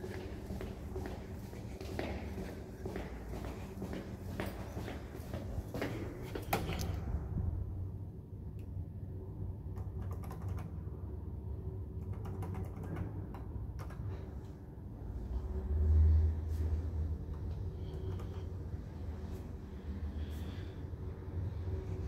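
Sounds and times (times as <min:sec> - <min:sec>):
steady low hum: 0:00.0 - 0:22.0
low rumble: 0:05.5 - 0:09.7.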